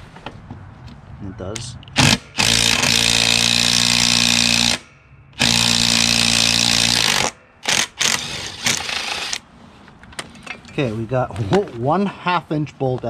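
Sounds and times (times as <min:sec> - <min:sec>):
impact driver hammering bolt: 0:01.8 - 0:09.4.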